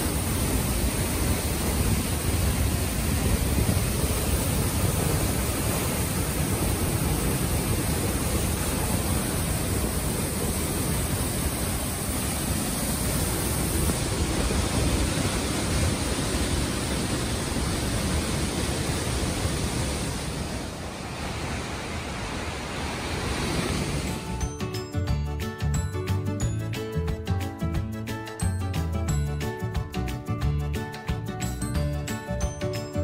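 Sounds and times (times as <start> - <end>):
waterfall rushing: 0.0 - 24.6.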